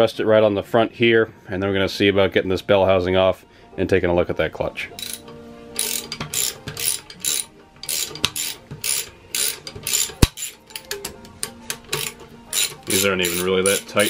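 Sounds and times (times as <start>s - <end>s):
ratchet wrench clicking: 5.0s - 14.0s.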